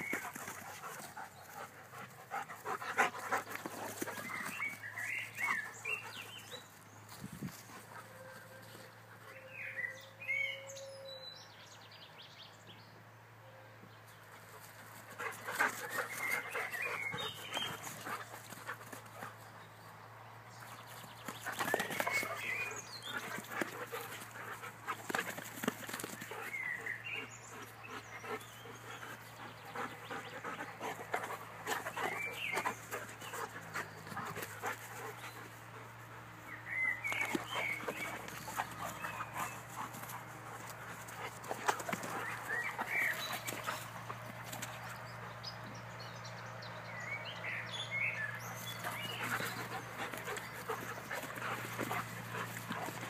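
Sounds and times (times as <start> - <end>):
dogs scuffling on grass: 0.0 - 9.0, 20.5 - 27.8, 28.4 - 45.2, 48.4 - 53.0
dogs panting: 0.0 - 9.5, 14.3 - 46.8, 47.4 - 53.0.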